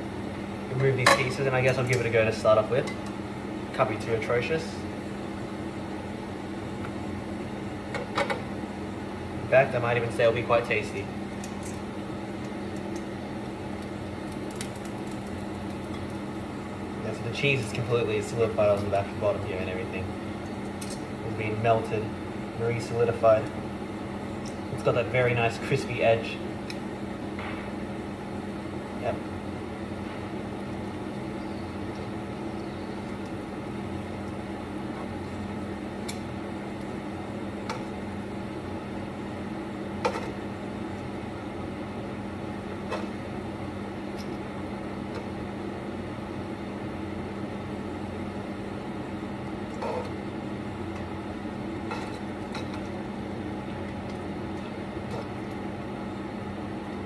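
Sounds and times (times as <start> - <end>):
kitchen appliance humming: 0.0 - 57.0.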